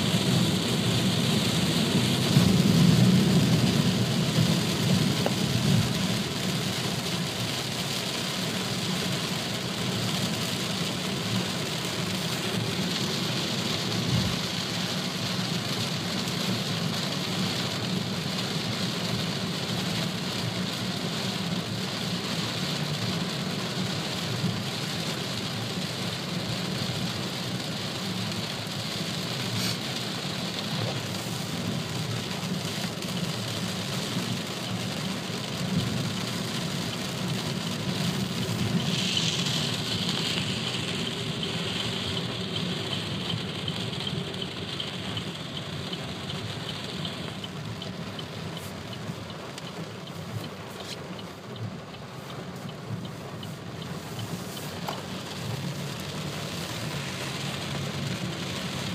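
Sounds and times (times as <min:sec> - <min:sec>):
heavy rain on a car: 0:00.0 - 0:58.9
low road rumble: 0:00.0 - 0:58.9
tyres hissing through water: 0:29.4 - 0:30.1, 0:38.0 - 0:42.8.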